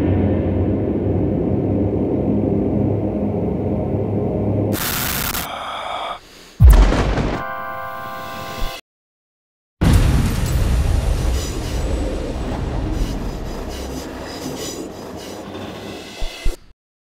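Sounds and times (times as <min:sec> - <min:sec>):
loud deep rumbling rush: 0:09.8 - 0:15.1.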